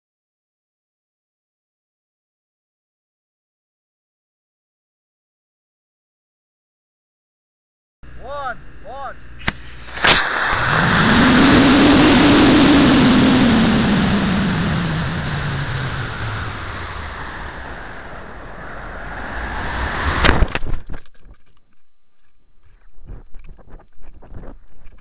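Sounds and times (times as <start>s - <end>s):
ejection charge crack: 9.4s - 21.0s
rocket motor roaring: 9.5s - 20.8s
rising hum: 9.6s - 20.9s
faint fluttering: 9.7s - 25.0s.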